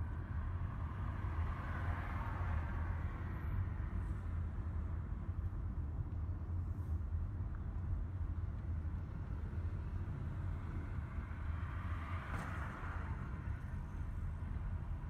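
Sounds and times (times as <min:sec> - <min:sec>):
car engine and tyres rumbling: 0:00.0 - 0:15.0.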